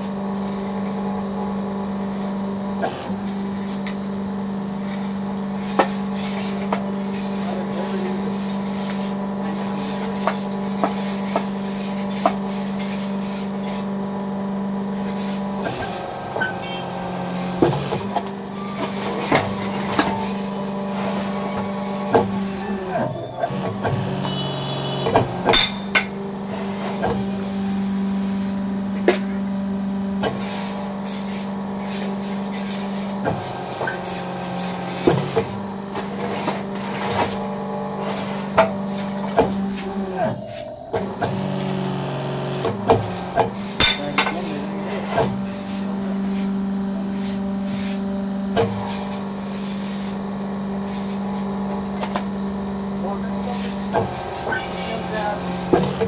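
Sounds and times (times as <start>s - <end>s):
electric motor humming: 5.2s - 28.8s, 30.8s - 56.0s.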